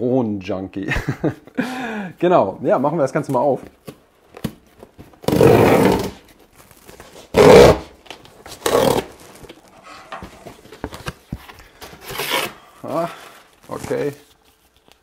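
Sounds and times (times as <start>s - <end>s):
packing tape ripping off box: 5.2s - 9.8s, 11.9s - 12.7s.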